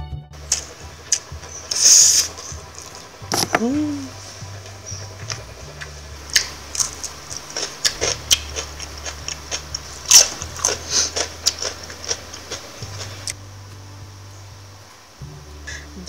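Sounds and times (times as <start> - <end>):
cucumber crunching: 0.4 - 4.1, 4.7 - 13.4.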